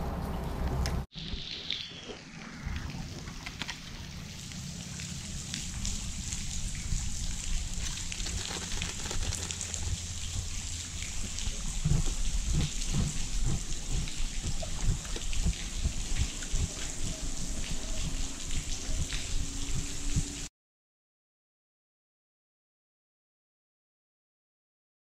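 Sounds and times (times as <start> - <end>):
steady rain pattering: 0.7 - 20.5
low wind rumble on microphone: 4.0 - 20.5.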